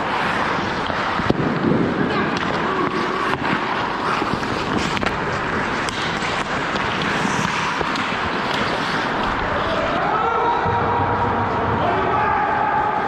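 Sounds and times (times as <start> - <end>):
skate blades scraping on ice: 0.0 - 10.0
hockey sticks and puck clacking: 0.0 - 11.8.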